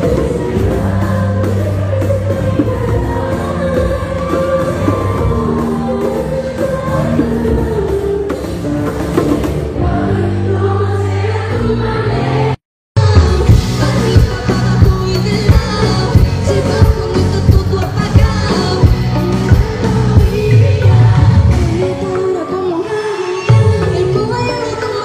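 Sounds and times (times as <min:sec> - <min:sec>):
woman singing: 0:13.0 - 0:25.0.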